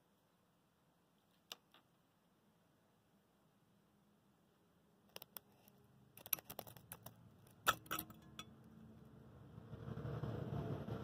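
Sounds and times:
utensil and ice clinking metal cup: 7.6 - 8.5
metal cup ringing: 7.7 - 8.6.

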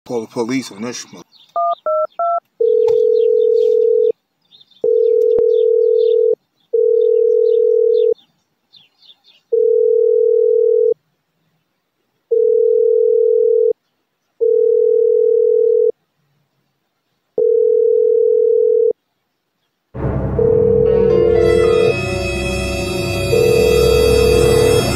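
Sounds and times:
telephone ringing tone: 1.6 - 4.2, 4.8 - 8.2, 9.5 - 11.0, 12.3 - 13.8, 14.4 - 16.0, 17.4 - 19.0, 21.9 - 24.9.

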